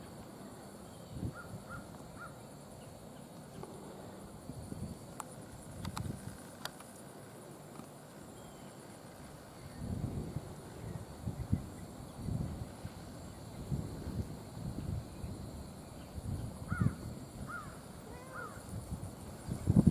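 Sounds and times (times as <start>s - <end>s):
insect buzz: 0.0s - 19.9s
sharp clicks: 5.1s - 7.0s.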